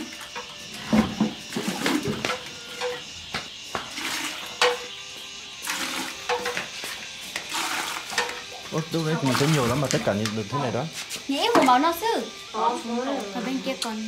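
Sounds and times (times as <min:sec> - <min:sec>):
water splashing: 0:03.8 - 0:04.6, 0:07.4 - 0:10.0
metal pot and utensils clattering: 0:04.0 - 0:04.9, 0:05.8 - 0:06.6, 0:07.6 - 0:08.4.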